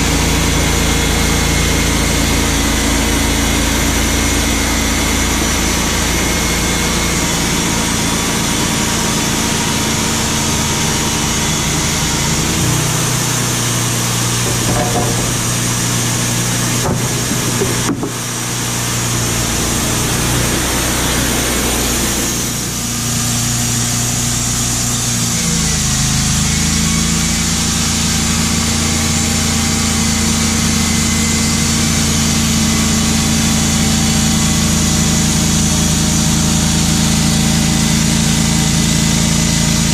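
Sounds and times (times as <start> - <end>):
sawmill engine running: 0.0 - 39.9.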